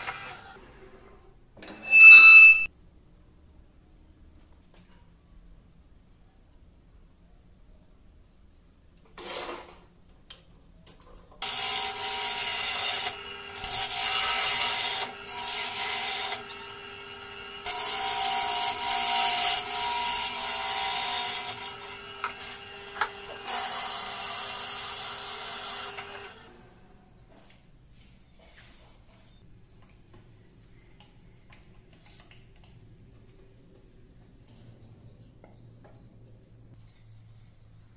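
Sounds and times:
wood lathe humming: 15.8s - 17.7s.

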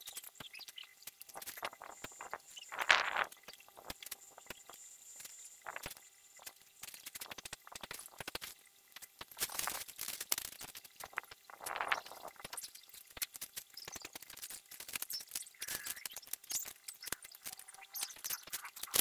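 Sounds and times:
plant leaves rustling: 9.3s - 17.2s.

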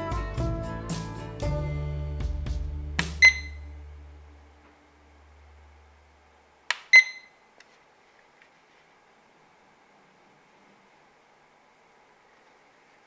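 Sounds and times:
alarm clock button clicks: 3.2s - 3.6s, 6.8s - 7.3s
short high electronic beep: 3.2s - 3.7s, 6.9s - 7.4s.

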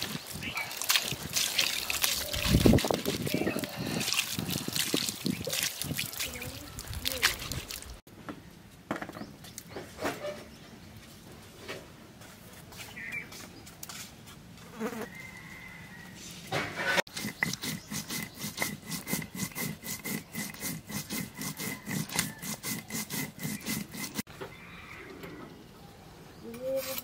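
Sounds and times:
stone grinding on stone slab: 17.1s - 24.3s.

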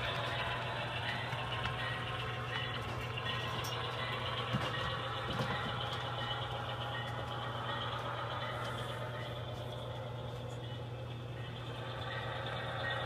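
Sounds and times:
model locomotive idling drone: 0.0s - 13.0s.

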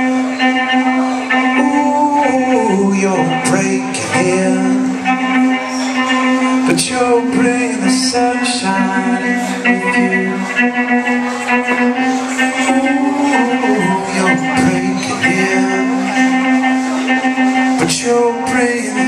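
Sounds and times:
live rock band playing: 0.0s - 19.0s
man singing: 1.5s - 5.4s, 6.6s - 10.5s, 12.6s - 16.4s, 17.7s - 19.0s.

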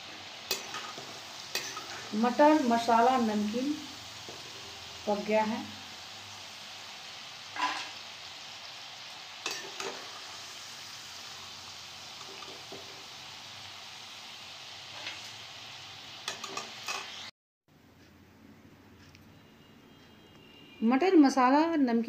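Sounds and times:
peas sizzling in hot oil: 0.0s - 17.3s
metal spoon scraping a pan: 0.2s - 2.7s, 7.5s - 8.0s, 9.4s - 10.3s, 12.2s - 13.0s, 14.9s - 15.4s, 16.2s - 17.2s.

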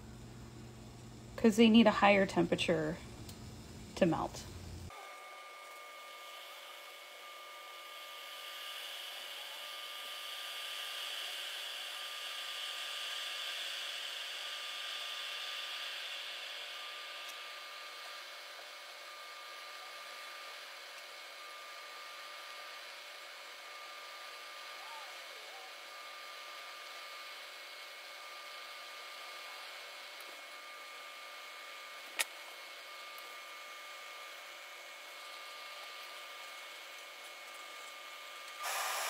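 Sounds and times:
kitchen hiss: 38.6s - 39.0s.

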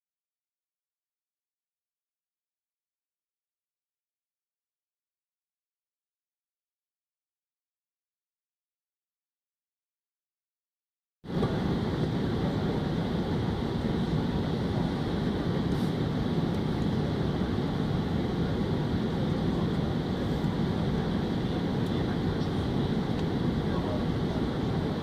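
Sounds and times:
airliner cabin airflow and engine noise: 11.3s - 25.0s.

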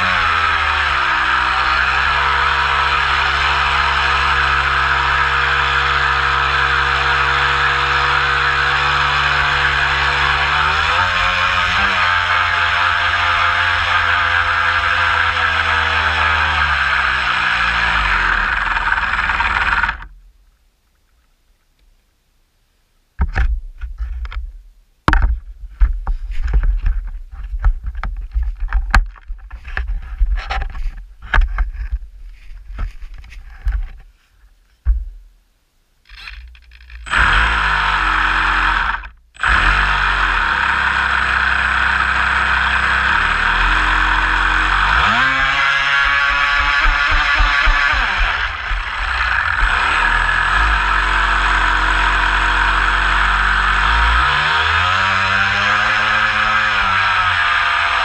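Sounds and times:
rc boat motor running: 0.0s - 20.1s, 36.1s - 58.0s.

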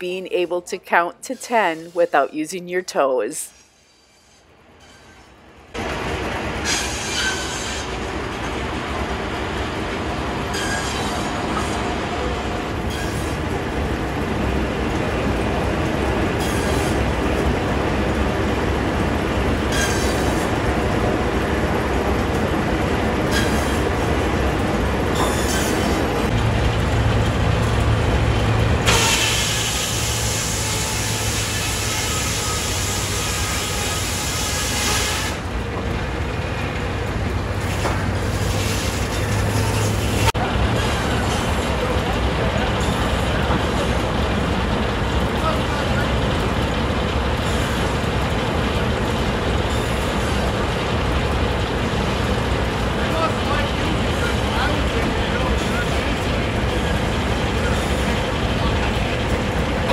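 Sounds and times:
sawmill machinery rumble: 0.0s - 59.9s
saw cutting through log: 6.6s - 7.9s, 28.8s - 35.4s.

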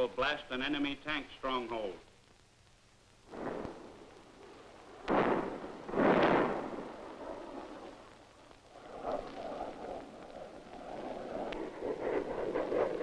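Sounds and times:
rocket explosions: 3.2s - 13.0s
rough rumbling: 3.2s - 13.0s.

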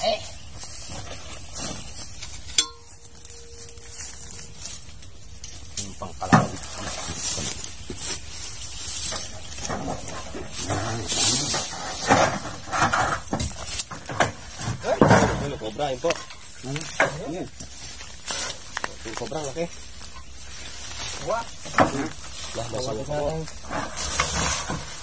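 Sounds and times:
hand rustling through grass: 0.3s - 9.6s
faint steady tone: 2.1s - 6.6s.

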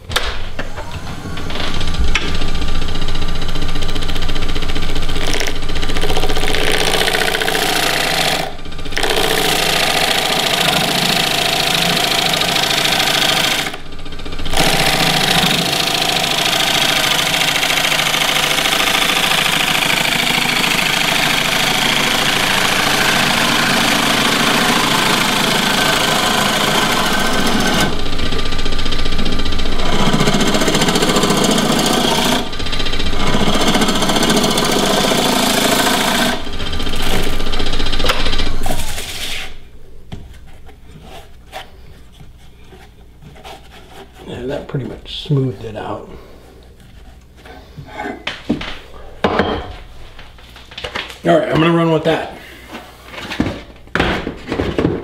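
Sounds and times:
lathe motor running: 0.5s - 39.0s
tool cutting wood on lathe: 0.6s - 39.6s.

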